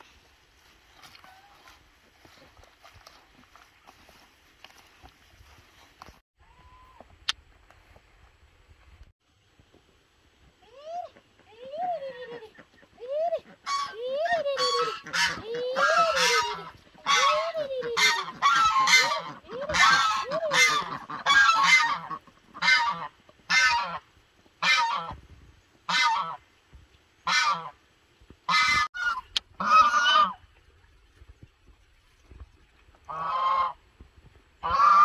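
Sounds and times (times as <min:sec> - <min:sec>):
geese honking: 0:13.5 - 0:24.0, 0:24.6 - 0:25.2, 0:25.9 - 0:26.4, 0:27.2 - 0:27.7, 0:28.5 - 0:30.4, 0:33.1 - 0:33.8, 0:34.6 - 0:35.0.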